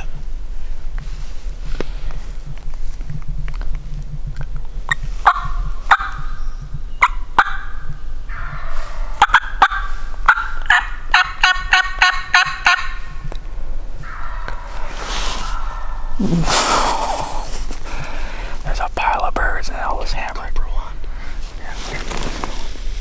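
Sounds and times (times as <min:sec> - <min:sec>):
turkey clucks and yelps: 0:04.9 - 0:06.4, 0:07.0 - 0:18.1
turkey gobble: 0:05.2 - 0:06.4, 0:07.0 - 0:17.5.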